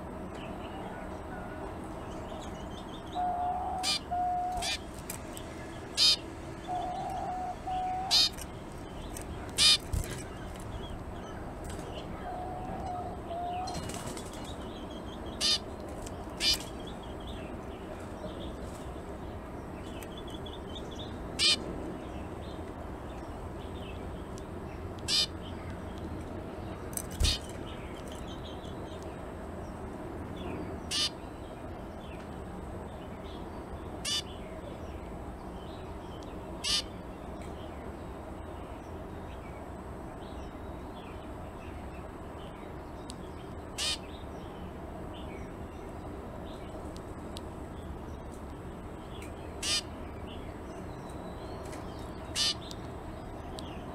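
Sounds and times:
finch short sharp calls: 3.8s - 4.8s, 6.0s - 6.2s, 8.0s - 8.5s, 9.6s - 10.4s, 15.4s - 15.6s, 25.1s - 25.3s, 27.2s - 27.5s, 30.9s - 31.1s, 34.0s - 34.3s, 36.6s - 36.9s, 43.8s - 44.0s, 49.6s - 49.9s, 52.3s - 52.7s.

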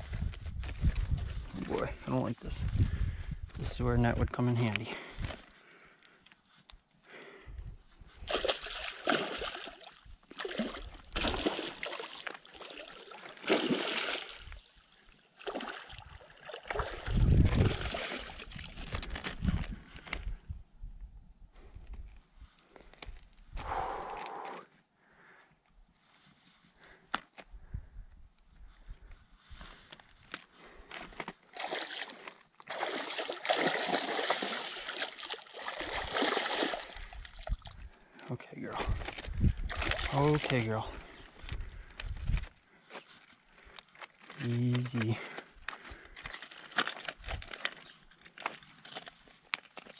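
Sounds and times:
fish thrashing and splashing: 8.3s - 14.6s, 15.4s - 19.2s, 31.5s - 37.8s, 39.0s - 40.5s, 46.2s - 47.8s.

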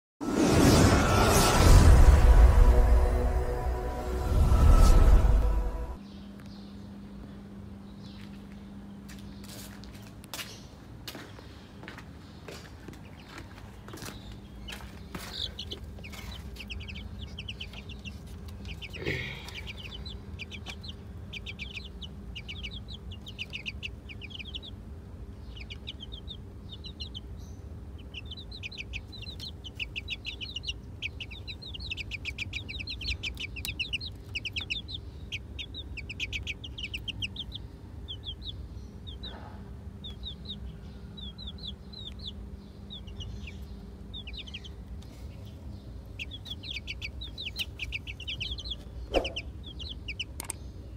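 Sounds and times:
steady low hum: 0.8s - 50.9s
chicks peeping: 11.8s - 50.9s.

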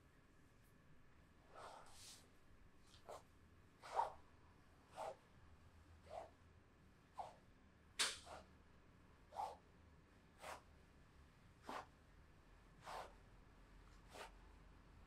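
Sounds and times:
hands swishing over skin: 10.4s - 10.6s, 12.8s - 13.2s.

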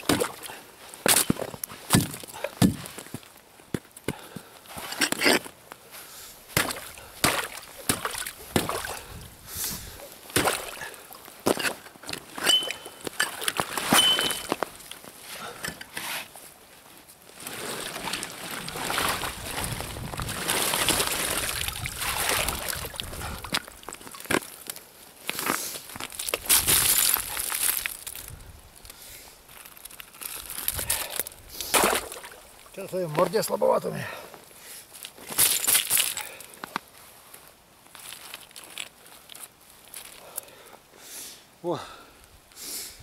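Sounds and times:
hatchet chopping ice: 1.1s - 2.9s, 6.6s - 8.9s, 10.4s - 10.8s
water sloshing and pouring: 17.4s - 24.0s
ice chunks clattering: 26.0s - 28.2s.

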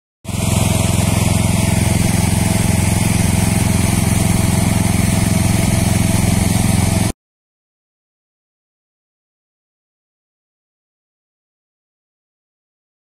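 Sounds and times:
lawn mower engine running: 0.2s - 7.1s.

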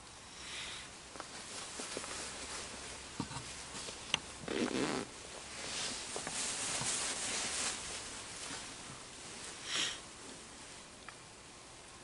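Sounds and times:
person breathing quietly: 0.2s - 1.0s, 9.5s - 10.1s
clothing rustle: 1.2s - 10.8s
sharp sniff: 9.6s - 10.0s.

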